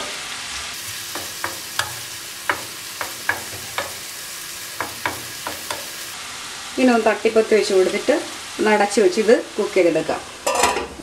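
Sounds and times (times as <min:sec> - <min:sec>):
food sizzling in a pan: 0:00.0 - 0:11.0
spatula tapping in a pan: 0:01.1 - 0:04.0, 0:04.8 - 0:06.0.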